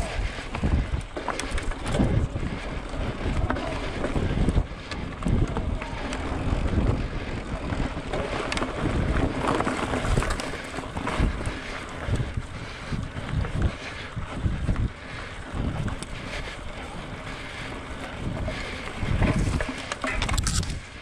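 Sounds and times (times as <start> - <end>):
wind buffeting microphone: 0.0 - 21.0
scattered clicks: 0.6 - 2.6, 18.6 - 21.0.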